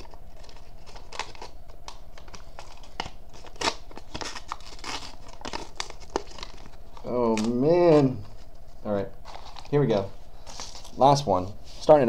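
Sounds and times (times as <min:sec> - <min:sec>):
plastic wrapper tearing and crinkling: 0:00.0 - 0:08.2.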